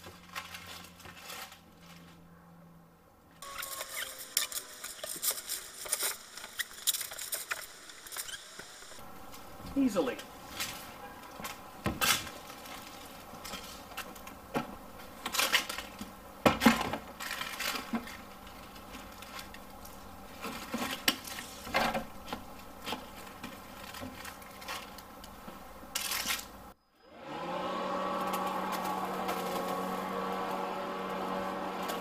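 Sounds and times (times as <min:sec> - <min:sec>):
plastic hose rustling: 0:00.0 - 0:02.4, 0:09.2 - 0:26.6, 0:28.1 - 0:32.0.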